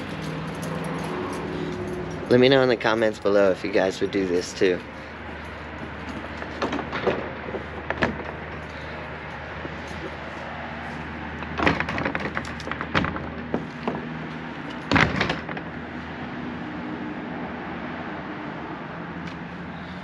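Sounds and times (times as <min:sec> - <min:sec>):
metal chain clinking: 0:00.0 - 0:03.3.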